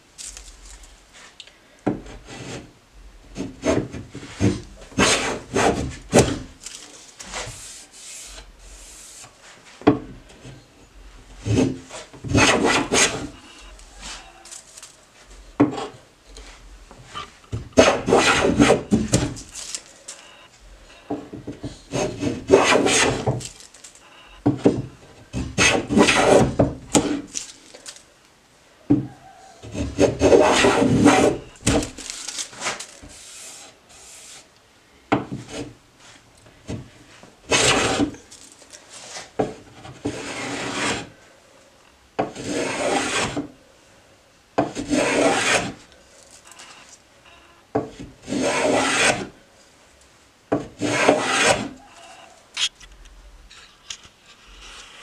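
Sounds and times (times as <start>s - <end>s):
hand plane rasping on wood: 3.4s - 6.0s, 11.4s - 13.3s, 17.8s - 19.2s, 21.9s - 23.4s, 25.6s - 27.3s, 29.6s - 31.4s, 37.5s - 38.1s, 40.1s - 41.1s, 42.3s - 43.4s, 44.7s - 45.8s, 48.2s - 49.3s, 50.8s - 51.8s.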